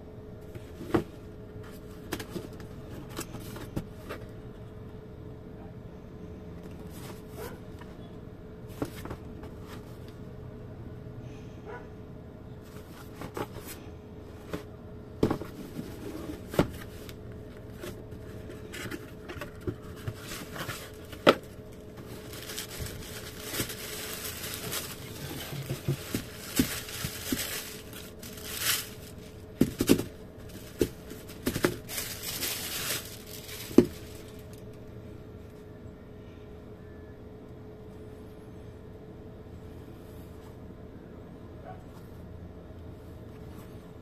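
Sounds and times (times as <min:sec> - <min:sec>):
tissue paper crinkling: 0:19.8 - 0:34.5.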